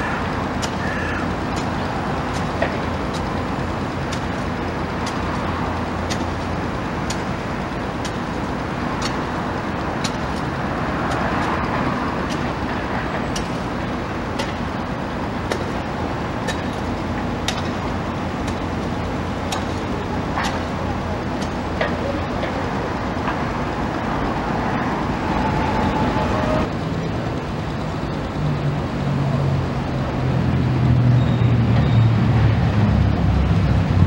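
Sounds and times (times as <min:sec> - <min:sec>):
engine rumble: 0:00.0 - 0:34.0
sharp clicks: 0:00.6 - 0:03.4, 0:04.0 - 0:07.3, 0:08.0 - 0:10.5.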